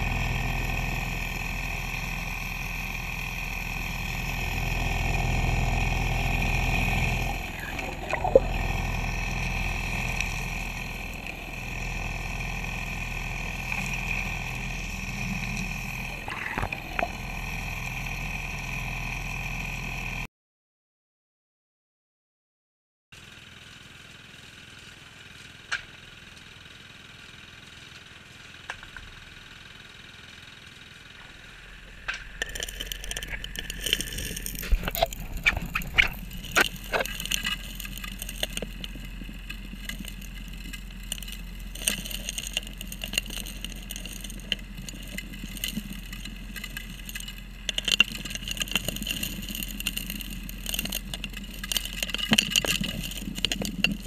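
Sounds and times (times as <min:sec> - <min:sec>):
dredge engine droning: 0:00.0 - 0:20.3, 0:29.1 - 0:54.0
rocks and gravel clattering: 0:09.9 - 0:17.4, 0:31.2 - 0:54.0.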